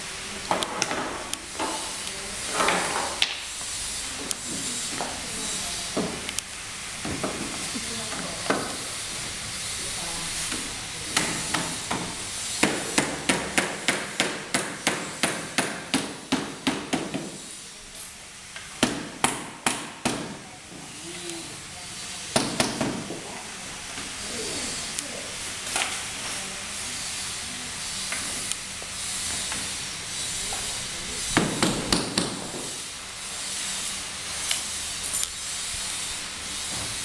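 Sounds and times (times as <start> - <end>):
hammer striking bamboo: 11.2 - 17.4, 18.8 - 20.4, 22.4 - 23.0, 31.4 - 32.7.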